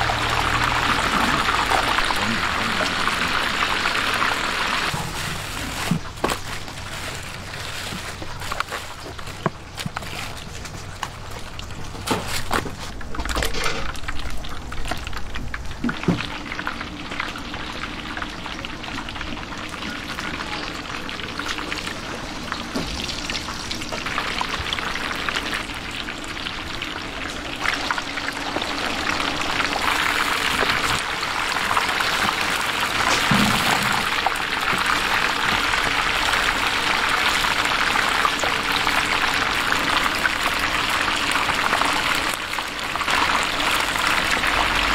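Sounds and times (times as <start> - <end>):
chicken frying in hot oil: 0.0 - 44.9.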